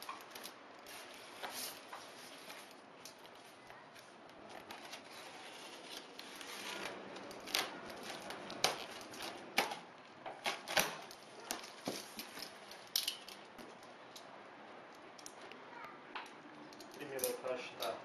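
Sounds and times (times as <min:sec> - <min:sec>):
tape and cardboard cracking: 0:00.0 - 0:14.0.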